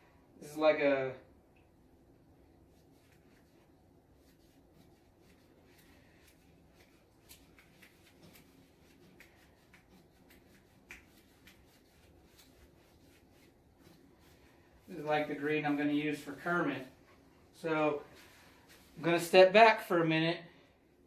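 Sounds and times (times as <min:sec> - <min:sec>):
paintbrush scratching on canvas: 0:02.6 - 0:17.3.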